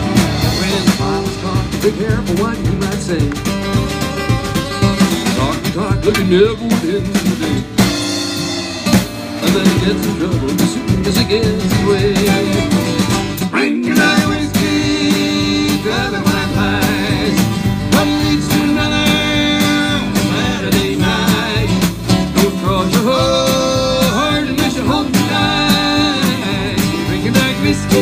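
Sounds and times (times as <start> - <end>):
drum kit beat: 0.0 - 28.0
fiddle melody: 0.0 - 28.0
strummed acoustic guitar: 0.0 - 28.0.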